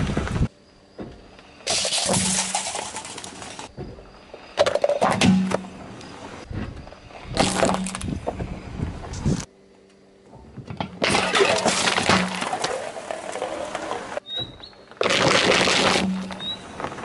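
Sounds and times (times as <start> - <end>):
tyre crushing drink cans: 1.6 - 3.7, 7.4 - 8.2, 10.8 - 16.6.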